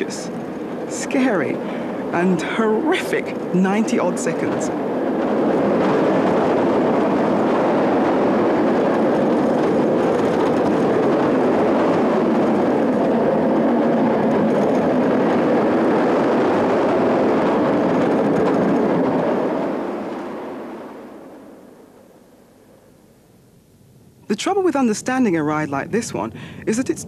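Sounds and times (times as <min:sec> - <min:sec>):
roller coaster rumbling on track: 0:00.0 - 0:21.6, 0:24.4 - 0:27.0.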